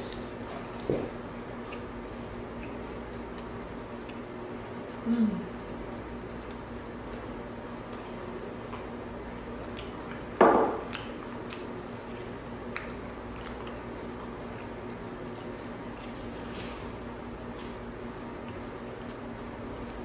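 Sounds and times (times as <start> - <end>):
steady low hum: 0.0 - 20.0
person chewing: 9.6 - 16.5.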